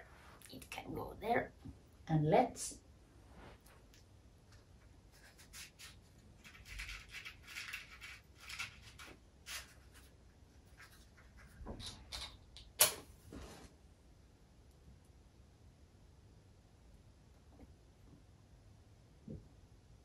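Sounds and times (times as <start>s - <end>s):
matchbox rustling and scraping: 5.2s - 10.1s.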